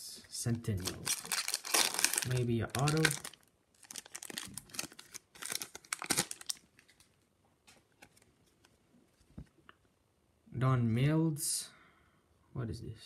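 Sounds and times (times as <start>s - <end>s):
foil wrapper tearing and crinkling: 0.8s - 6.9s.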